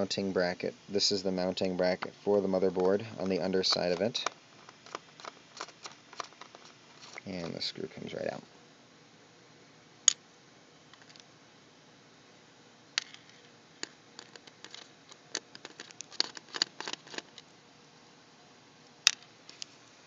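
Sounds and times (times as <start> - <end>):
screwdriver clicking on plastic: 3.2 - 7.2.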